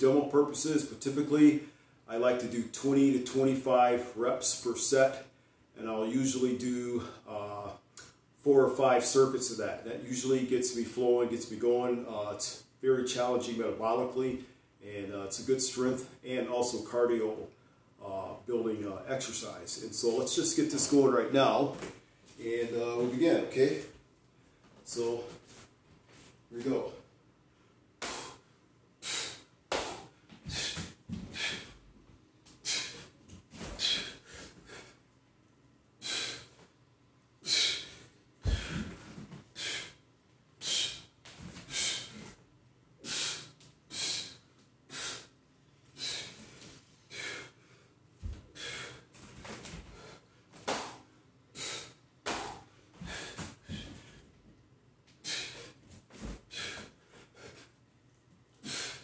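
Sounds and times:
man breathing hard: 28.0s - 31.9s, 32.6s - 35.0s, 36.0s - 36.6s, 37.4s - 42.4s, 43.0s - 49.2s, 49.8s - 54.4s, 55.2s - 57.8s, 58.6s - 59.0s.

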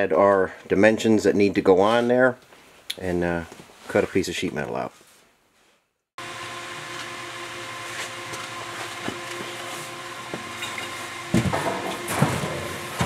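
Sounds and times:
electric motor humming: 6.2s - 13.0s.

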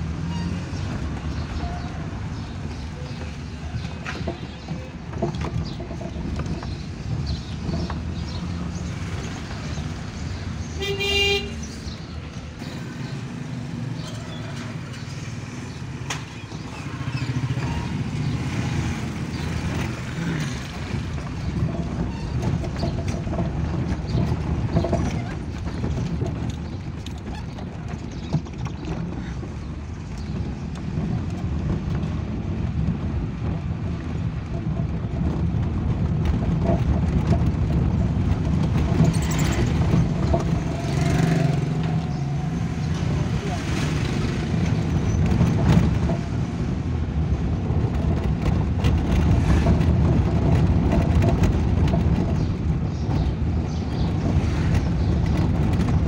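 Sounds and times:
car engine and road noise: 0.0s - 56.0s
vehicle horn: 10.7s - 11.7s.

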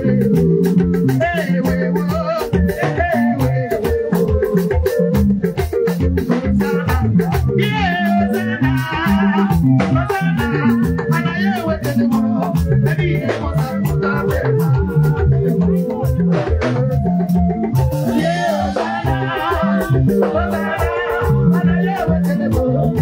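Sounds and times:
busy even beat: 0.0s - 23.0s
keyboard bass line: 0.0s - 23.0s.

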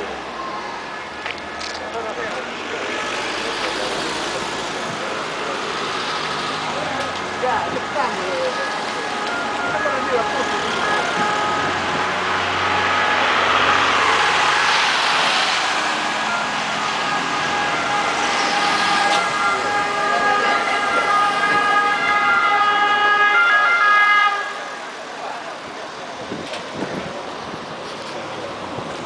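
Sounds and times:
cars passing close by: 0.0s - 29.0s
emergency vehicle siren: 6.6s - 25.1s.

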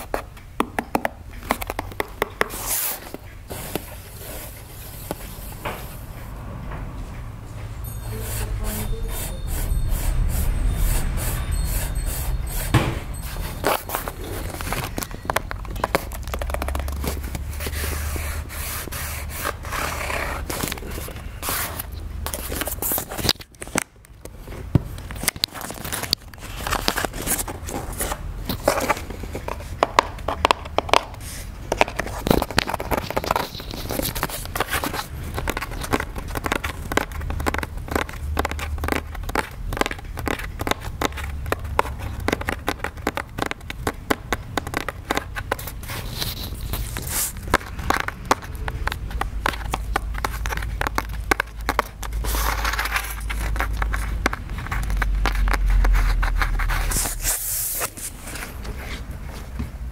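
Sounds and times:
fingers scratching cardboard box: 13.6s - 23.3s, 25.6s - 58.1s.

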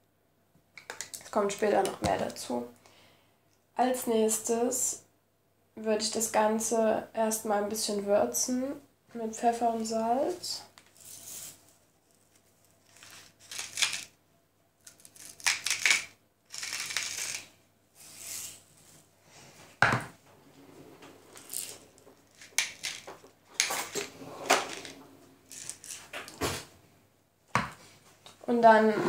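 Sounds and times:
pepper mill grinding: 12.3s - 14.1s, 14.8s - 17.5s, 21.4s - 24.1s, 24.7s - 24.9s, 25.5s - 26.2s.

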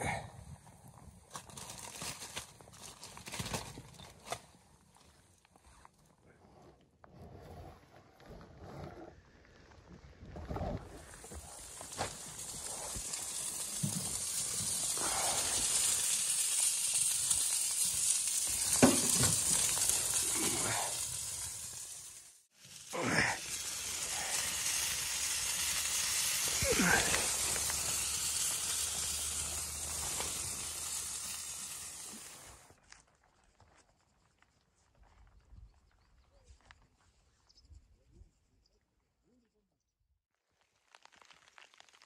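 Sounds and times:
meat and fire popping: 0.1s - 5.2s, 10.4s - 34.5s, 40.5s - 42.0s
chicken sizzling on grill: 11.1s - 32.7s.

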